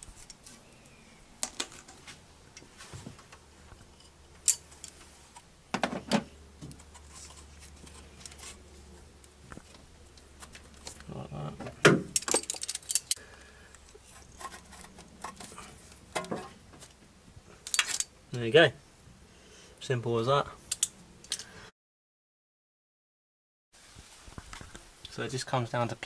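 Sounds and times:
metal clicks and clatter: 12.1s - 13.2s.

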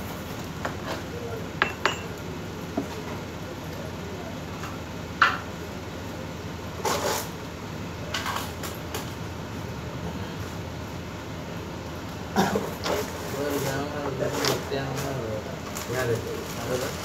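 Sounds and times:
steady low background noise: 0.0s - 17.0s
short scrape: 6.8s - 7.4s.

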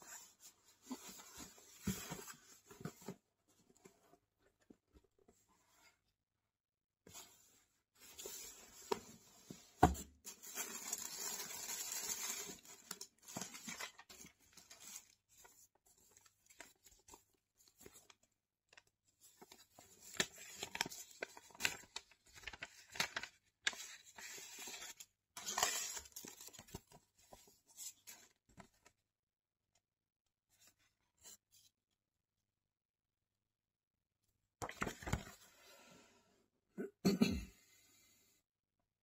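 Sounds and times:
tissue paper rustling: 10.3s - 16.9s, 19.4s - 26.9s.

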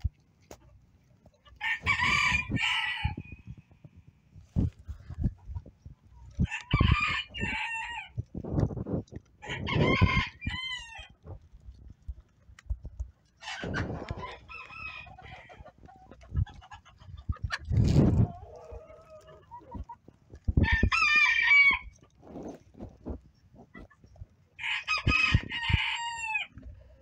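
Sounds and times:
roosters crowing: 1.6s - 3.5s, 6.4s - 8.2s, 9.4s - 11.2s, 13.4s - 15.8s, 20.6s - 22.0s, 24.6s - 26.6s
hens clucking: 13.4s - 21.2s.

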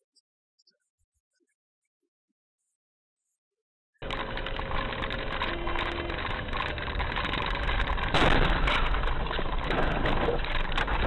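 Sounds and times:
car engine and road noise: 4.0s - 11.0s.

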